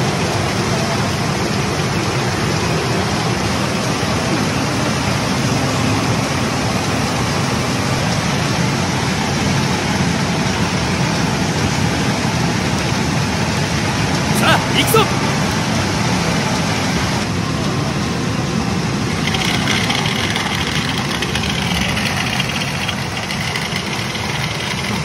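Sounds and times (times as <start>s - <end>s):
pachinko machines din: 14.3s - 15.1s.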